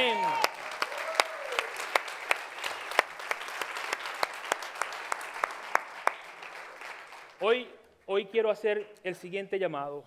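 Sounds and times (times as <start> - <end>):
close sharp hand claps: 0.0 - 7.4
congregation applauding: 0.0 - 7.6.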